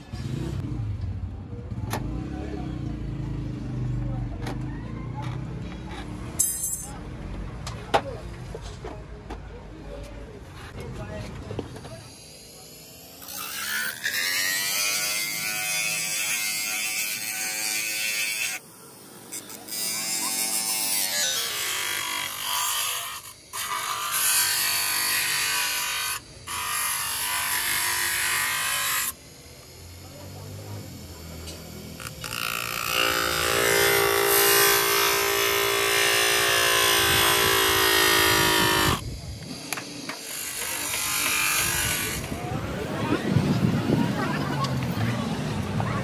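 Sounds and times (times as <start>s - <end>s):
grinder whining on plastic: 19.2s - 42.5s.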